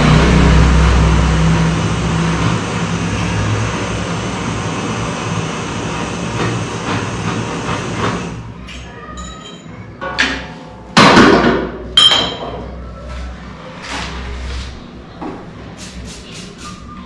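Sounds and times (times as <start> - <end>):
metal strikes on workbench: 10.2 - 12.6
metallic ring: 12.0 - 12.5.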